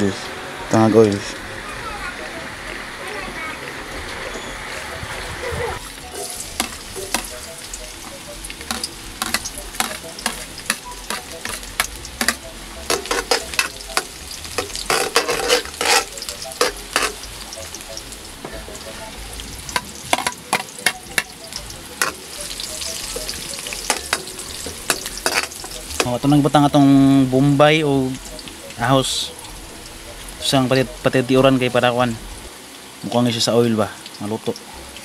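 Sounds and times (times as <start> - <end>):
garlic sizzling in hot oil: 5.8 - 35.0
metal spatula scraping a wok: 8.7 - 17.3, 23.8 - 26.1.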